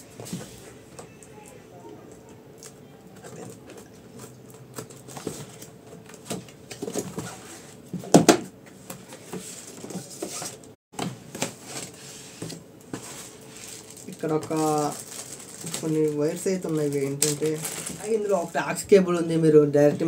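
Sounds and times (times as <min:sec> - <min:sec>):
cardboard and paper rustling: 0:03.2 - 0:07.8, 0:09.0 - 0:18.7.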